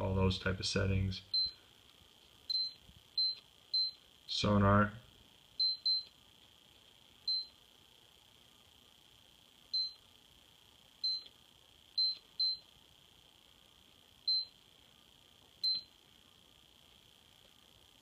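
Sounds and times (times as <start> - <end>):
high electronic key beeps: 1.2 - 1.6, 2.5 - 4.0, 5.6 - 6.1, 7.3 - 7.5, 11.0 - 11.3, 12.0 - 12.7, 14.3 - 14.6, 15.6 - 15.9.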